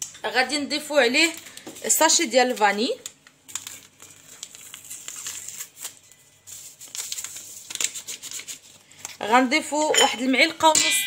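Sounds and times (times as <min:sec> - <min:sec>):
sachet crinkling and crackling: 0:01.0 - 0:09.4.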